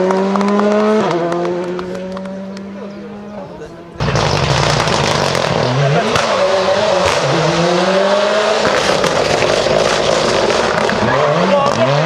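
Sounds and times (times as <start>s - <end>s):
rally car engine revving: 0.0s - 12.0s
sharp exhaust cracks: 4.0s - 6.4s, 8.5s - 11.8s.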